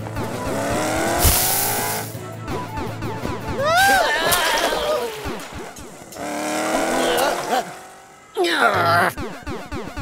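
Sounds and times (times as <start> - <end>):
music: 0.0 - 5.6, 8.8 - 10.0.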